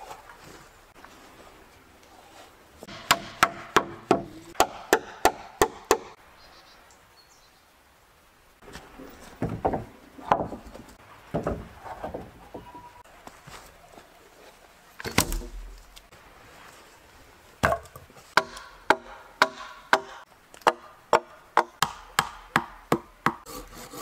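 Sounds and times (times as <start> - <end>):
hammer striking nail into wood: 2.9 - 6.1
wooden boards knocking: 9.4 - 12.7, 17.6 - 23.4.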